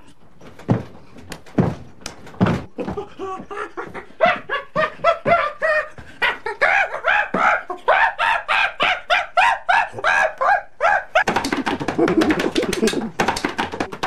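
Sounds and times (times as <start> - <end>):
thumps: 0.2 - 6.2, 11.2 - 14.0
man hooting like a chimpanzee: 3.4 - 13.1.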